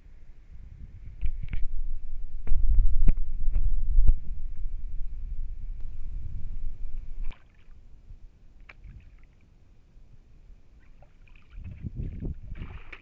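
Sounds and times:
low rumbling: 0.0s - 10.8s
kayak paddle strokes on water: 10.8s - 13.0s.

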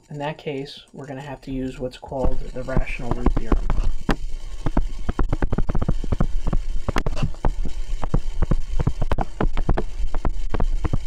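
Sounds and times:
steady low hum: 0.0s - 11.0s
stylus tapping on tablet screen: 3.1s - 11.0s.

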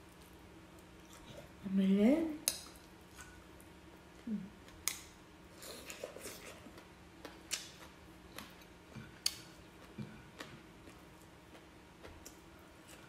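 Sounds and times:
chewing mouth clicks and smacks: 5.8s - 13.0s.

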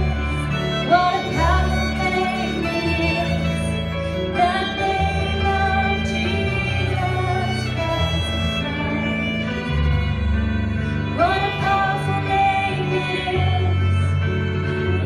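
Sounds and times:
woman singing: 0.0s - 3.7s, 4.3s - 9.3s, 11.1s - 14.2s
fiddle playing bowed melody: 0.0s - 15.0s
low bass notes: 0.0s - 15.0s.

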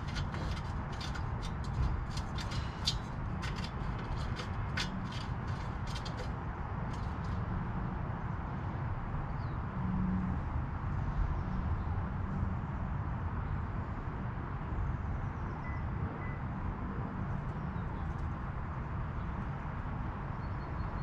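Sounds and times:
low outdoor rumble: 0.0s - 8.0s.

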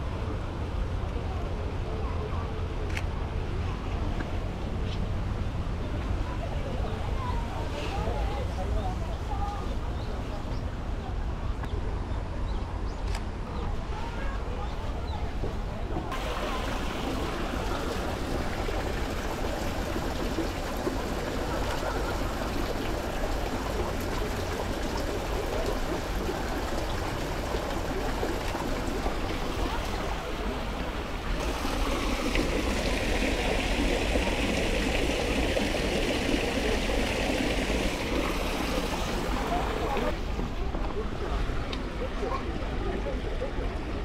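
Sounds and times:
running water rushing: 13.7s - 44.0s.

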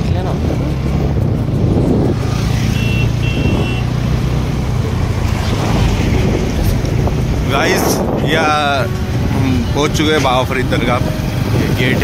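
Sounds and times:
road and wind noise: 0.0s - 12.0s
car horn beeps: 2.6s - 4.0s.

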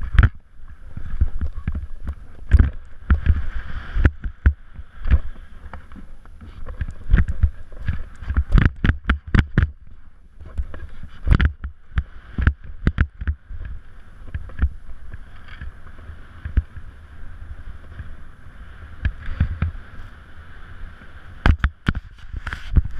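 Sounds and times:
skis scraping over snow: 0.0s - 22.9s
wind rumble on microphone: 0.0s - 22.9s
skis knocking over bumps: 1.0s - 9.8s.

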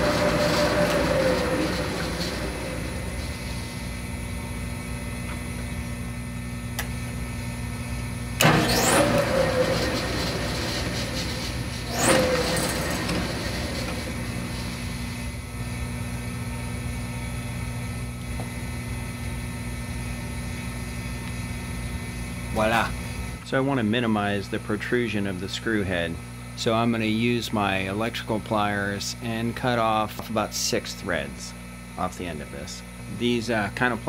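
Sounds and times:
drill cutting metal with squeal: 0.0s - 3.5s, 8.4s - 15.0s
machine hum: 0.0s - 34.0s.

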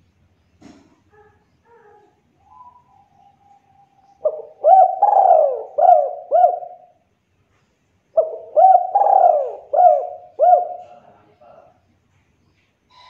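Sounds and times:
dove cooing: 1.1s - 7.0s, 8.2s - 11.1s.

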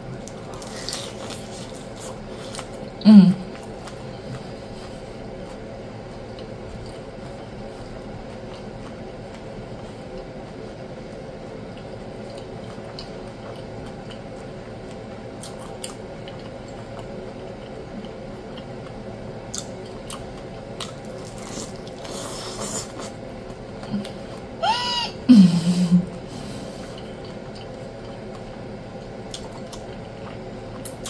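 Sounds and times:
crispy tortilla crunching: 0.0s - 10.2s, 11.8s - 23.6s
faint steady hum: 0.0s - 31.0s
wet chewing: 0.1s - 24.5s, 26.6s - 31.0s.

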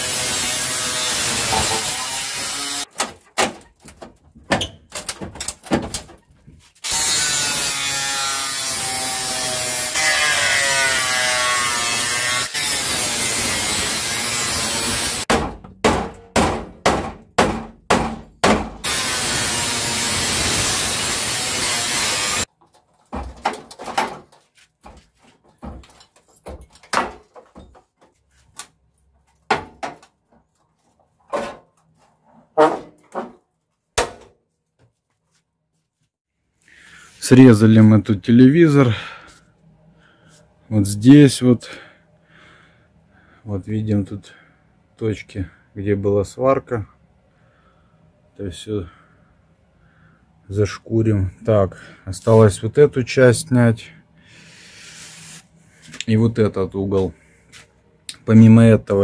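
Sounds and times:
angle grinder cutting steel: 0.0s - 2.9s, 6.8s - 15.3s, 18.8s - 22.5s.

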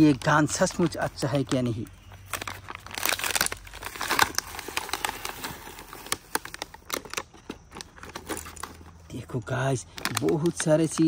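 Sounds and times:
plastic packaging crinkling: 0.0s - 11.0s
cardboard ripping: 2.3s - 7.2s.

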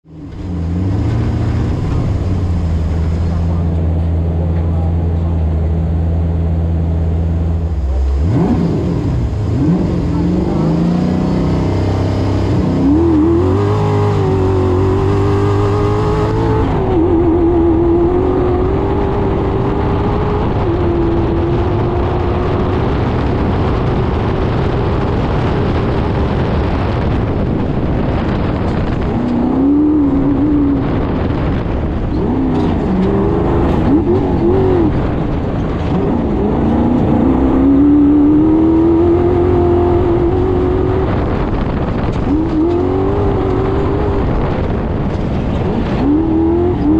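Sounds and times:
race car engine revving: 0.0s - 46.9s.

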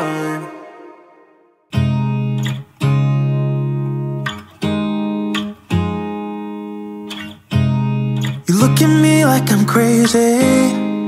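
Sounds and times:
guitar chords: 0.0s - 11.0s.

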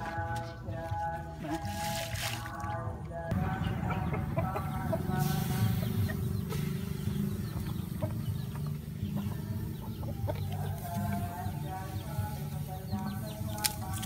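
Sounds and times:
chickens clucking: 0.0s - 14.0s
low rumble: 3.3s - 9.4s.

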